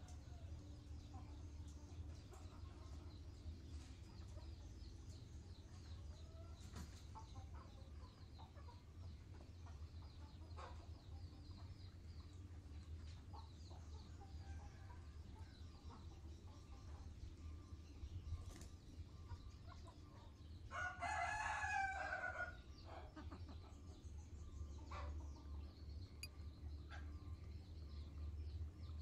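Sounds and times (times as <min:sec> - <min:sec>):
chickens clucking: 0:05.8 - 0:17.0, 0:18.4 - 0:20.8, 0:22.0 - 0:24.0, 0:24.6 - 0:25.7.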